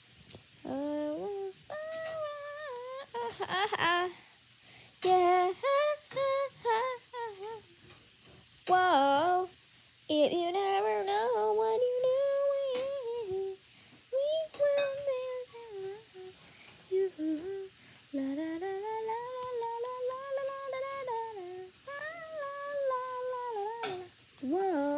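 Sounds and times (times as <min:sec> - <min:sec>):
girl humming a tune: 0:00.7 - 0:04.2, 0:05.0 - 0:07.6, 0:14.2 - 0:24.9.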